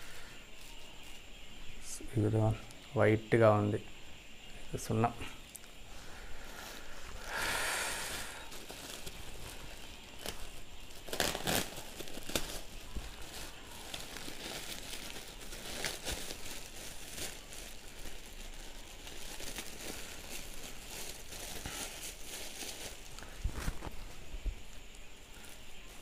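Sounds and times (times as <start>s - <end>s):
plastic bag crinkling: 5.5s - 26.0s.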